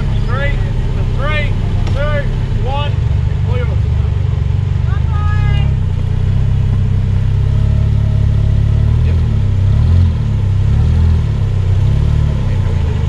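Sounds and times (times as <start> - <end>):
engine revving under load: 0.0 - 13.0.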